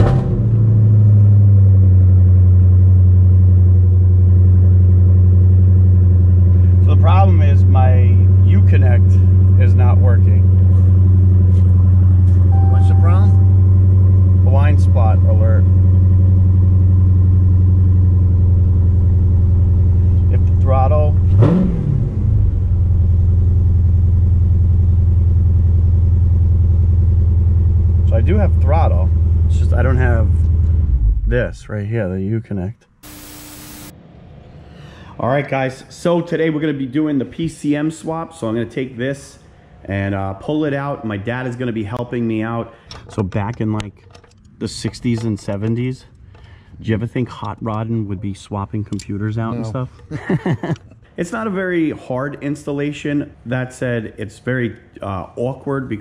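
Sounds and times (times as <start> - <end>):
car engine idling: 0.0 - 31.6
engine throttle blip: 12.5 - 14.4.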